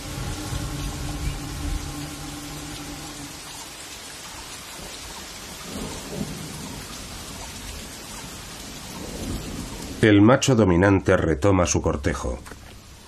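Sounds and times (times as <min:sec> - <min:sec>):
thunder rumble: 0:00.0 - 0:10.0
heavy rain: 0:00.0 - 0:13.0.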